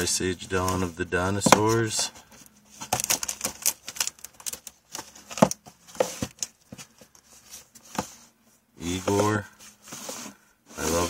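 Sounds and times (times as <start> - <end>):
plastic cases clacking: 1.4 - 8.2.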